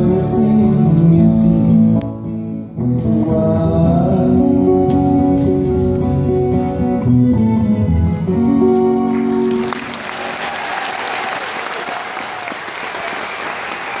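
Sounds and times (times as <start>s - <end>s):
audience applause: 9.0s - 14.0s.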